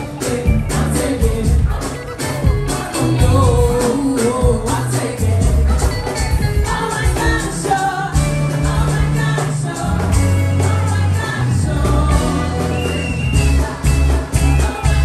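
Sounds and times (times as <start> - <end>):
drums: 0.0 - 15.0
electric guitar: 0.0 - 15.0
heavy bass notes: 0.0 - 15.0
woman singing into microphone: 6.5 - 15.0.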